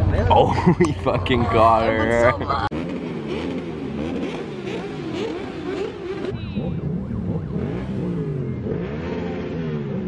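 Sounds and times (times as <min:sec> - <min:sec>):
motorcycle engines revving: 0:00.0 - 0:10.0.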